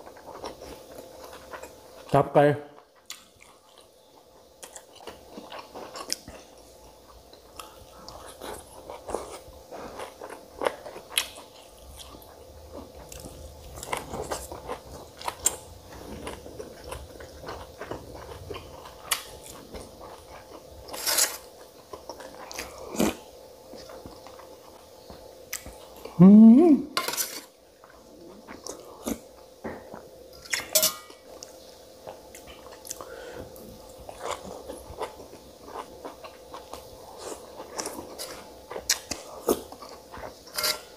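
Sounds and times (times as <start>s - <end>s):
faint steady hum: 0.0s - 40.9s
spoon clinking on a steel plate: 30.7s - 31.1s
chewing with lip smacks: 31.4s - 40.4s.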